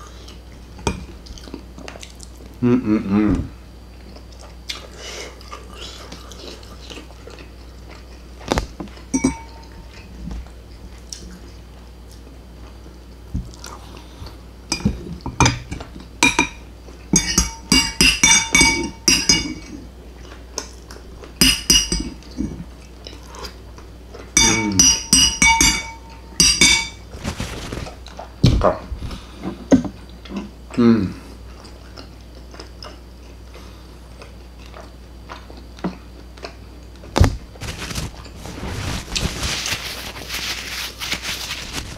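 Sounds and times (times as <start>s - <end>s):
metal spoon clinking ceramic bowl: 9.1s - 9.8s, 14.7s - 19.8s, 21.4s - 22.2s, 24.4s - 27.0s.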